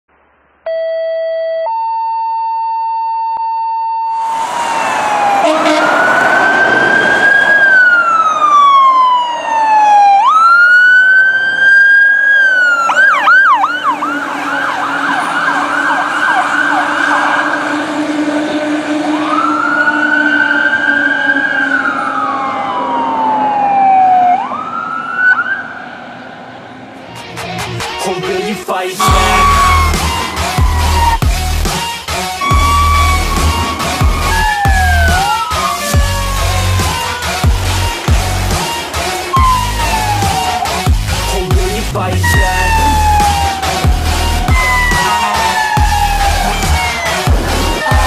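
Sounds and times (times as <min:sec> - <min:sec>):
siren wailing and yelping: 0:00.7 - 0:25.9, 0:29.0 - 0:48.0
fire engine horn: 0:04.1 - 0:10.0, 0:12.9 - 0:24.0, 0:29.0 - 0:48.0
truck engine and road noise: 0:04.2 - 0:48.0.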